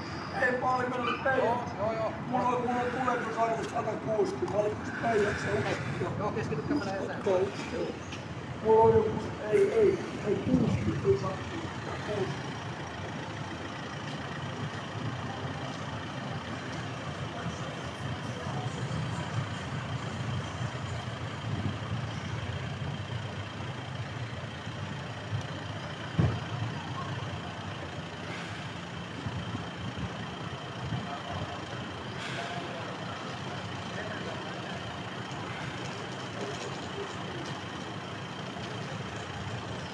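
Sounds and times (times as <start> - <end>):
vehicle engine idling: 0.0 - 39.9
thump: 26.2 - 26.4.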